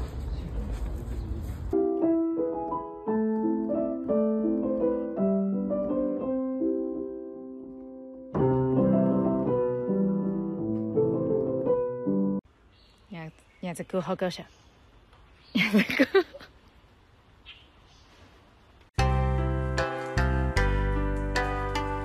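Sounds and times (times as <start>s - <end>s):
gentle piano music: 1.7s - 12.4s, 19.0s - 22.0s.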